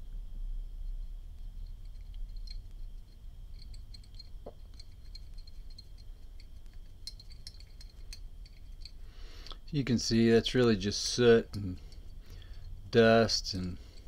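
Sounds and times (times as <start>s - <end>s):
faint high whine: 0.0s - 14.0s
low hum: 0.0s - 14.0s
small metal clicks and scrapes: 1.4s - 9.1s.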